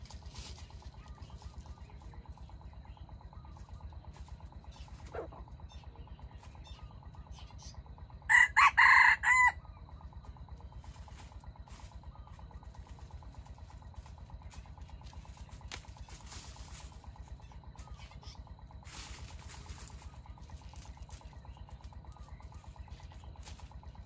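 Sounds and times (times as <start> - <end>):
faint low hum: 0.0 - 24.0
rooster crowing: 8.3 - 9.6.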